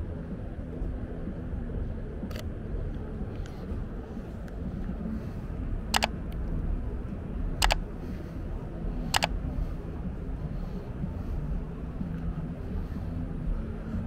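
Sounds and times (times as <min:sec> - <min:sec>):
low city rumble: 0:00.0 - 0:14.0
sharp double clicks: 0:06.0 - 0:06.5, 0:07.6 - 0:07.8, 0:09.1 - 0:09.4.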